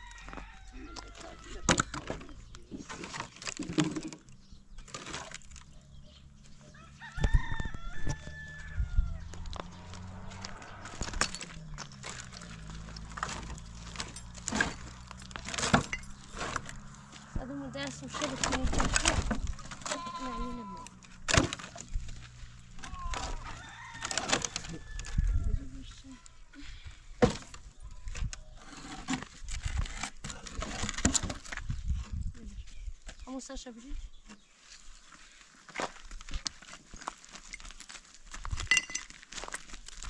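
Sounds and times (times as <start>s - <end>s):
rooster crowing: 0.0s - 1.7s, 6.7s - 9.5s, 23.0s - 25.6s
firewood logs thumping: 0.3s - 5.6s, 9.4s - 20.1s, 21.1s - 25.2s, 27.2s - 27.7s
sheep or goat bleating: 19.7s - 21.0s.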